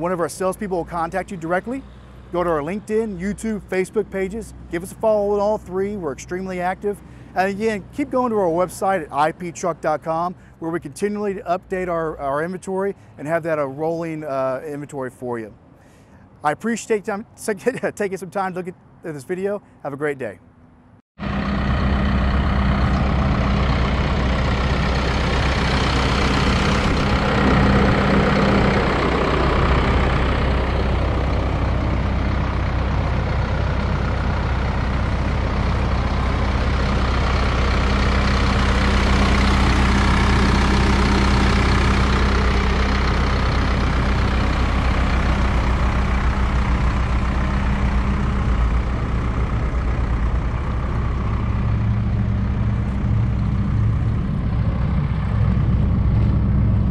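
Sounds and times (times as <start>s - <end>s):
diesel truck engine idling: 0.0s - 13.4s, 21.2s - 56.9s.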